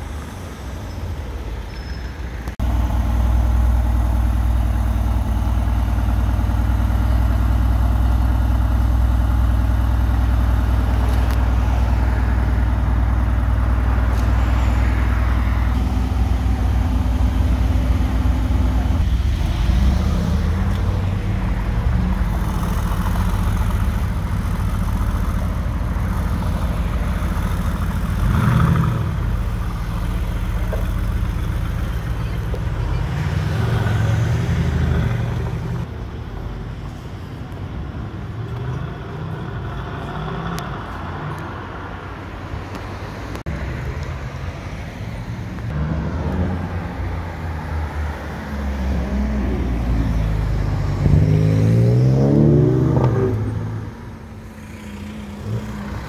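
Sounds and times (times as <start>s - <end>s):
car engine idling loudly: 2.5s - 34.1s
engine revving: 13.7s - 35.9s, 45.7s - 56.0s.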